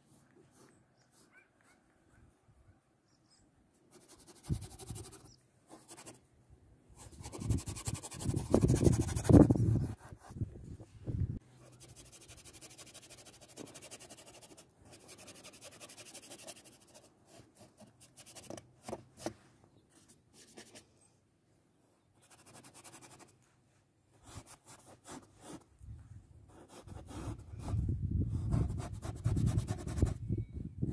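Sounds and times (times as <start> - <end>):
paintbrush scratching on board: 7.0 - 10.2, 28.4 - 30.2.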